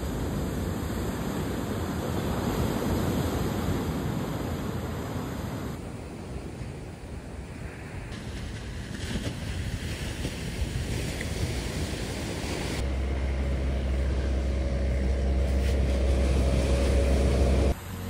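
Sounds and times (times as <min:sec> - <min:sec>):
wind on microphone: 0:00.0 - 0:17.8
surf washing onto beach: 0:07.6 - 0:17.8
low rumble with faint hum: 0:11.0 - 0:18.0.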